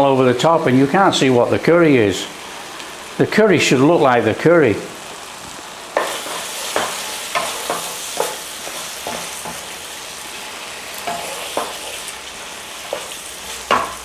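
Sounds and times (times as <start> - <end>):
sauce sizzling in frying pan: 0.0 - 14.0
spatula scraping pan: 6.0 - 9.9, 10.9 - 14.0.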